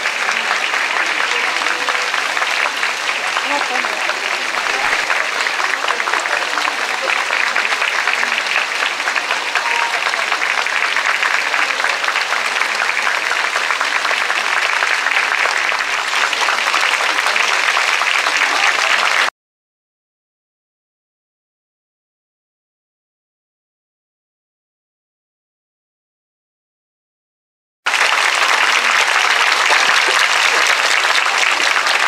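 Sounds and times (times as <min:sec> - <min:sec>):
crowd applauding: 0:00.0 - 0:19.3, 0:27.9 - 0:32.0
voices: 0:00.0 - 0:19.3.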